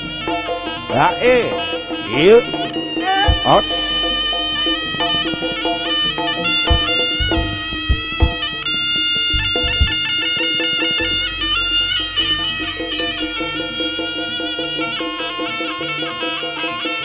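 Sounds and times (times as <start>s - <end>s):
quick rhythmic accompaniment: 0.0s - 16.2s
shrill reedy shawm melody: 0.0s - 17.0s
low drum strokes: 2.4s - 8.6s, 9.3s - 10.0s.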